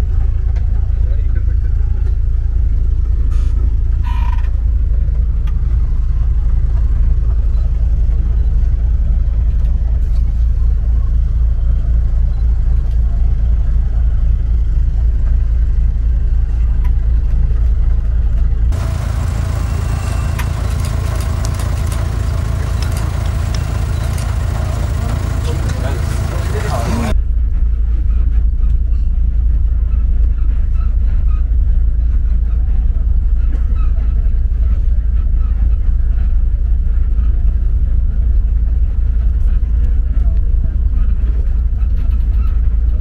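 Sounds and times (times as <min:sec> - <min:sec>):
vehicle engine idling: 0:00.3 - 0:27.2.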